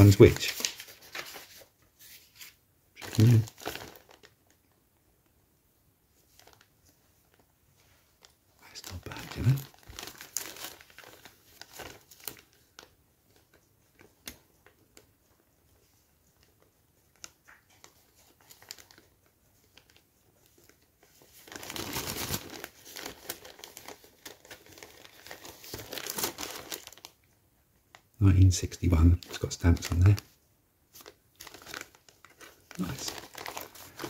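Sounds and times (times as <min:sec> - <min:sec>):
plastic bag crinkling: 0:00.0 - 0:04.6, 0:08.2 - 0:13.0, 0:17.8 - 0:27.3, 0:28.6 - 0:34.0.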